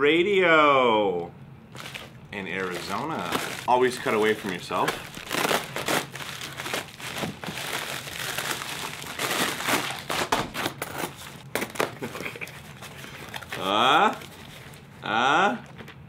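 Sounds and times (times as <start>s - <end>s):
plastic envelope crinkling: 1.7s - 14.9s.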